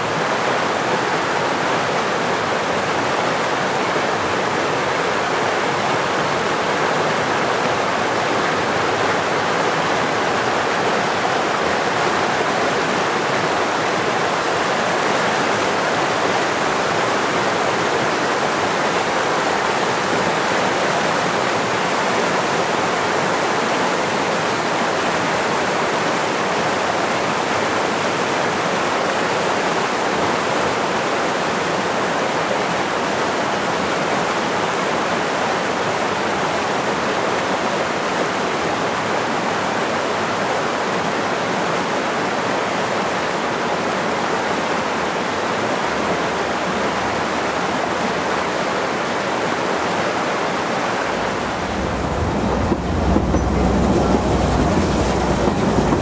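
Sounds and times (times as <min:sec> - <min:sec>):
loud steady rushing noise: 0:49.7 - 0:56.0.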